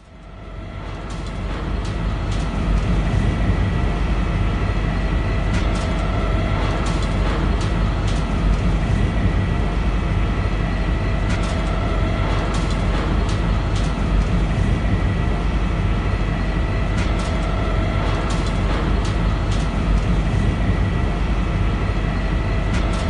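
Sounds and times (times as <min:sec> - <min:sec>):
industrial machinery rumble: 0:00.0 - 0:23.0.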